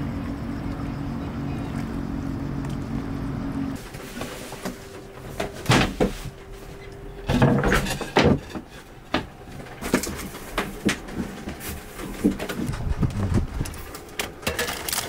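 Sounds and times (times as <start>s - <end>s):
wooden boards knocking and clunking: 4.2s - 6.4s, 7.1s - 14.8s.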